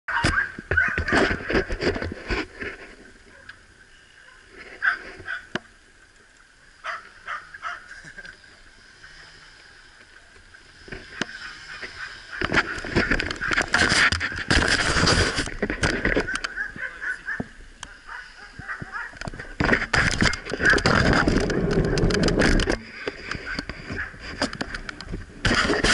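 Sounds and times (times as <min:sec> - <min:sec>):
bicycle rolling on pavement: 0:18.0 - 0:25.9
bike rattling and knocking: 0:18.8 - 0:25.9.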